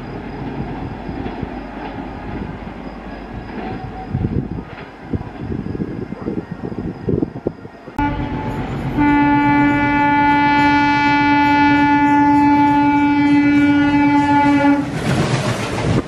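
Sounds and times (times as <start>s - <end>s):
train rumbling and clattering: 0.0s - 16.0s
locomotive horn blast: 8.0s - 15.0s.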